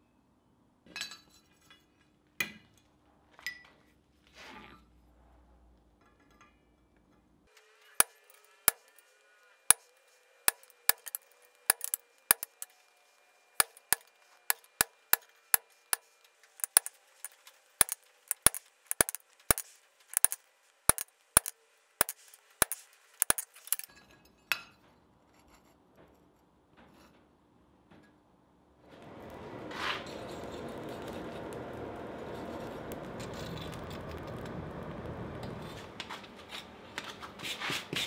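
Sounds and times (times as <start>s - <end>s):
hammer striking chisel on steel: 8.0s - 9.0s, 9.7s - 9.9s, 10.5s - 12.8s, 13.6s - 23.9s.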